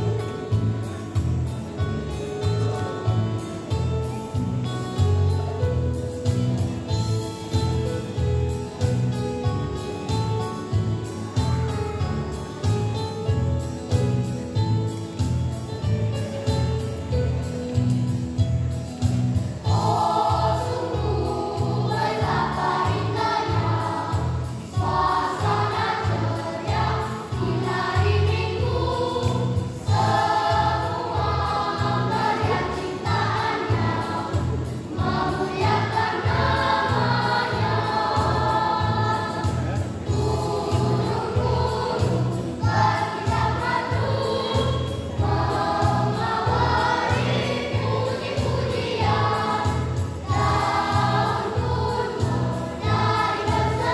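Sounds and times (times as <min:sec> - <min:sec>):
children's choir singing: 0:19.6 - 0:53.9.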